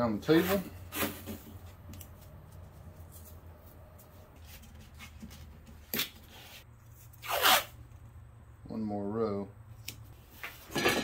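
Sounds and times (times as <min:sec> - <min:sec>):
tape being rubbed flat: 0:04.1 - 0:07.8
tape ripping off roll: 0:07.1 - 0:07.8.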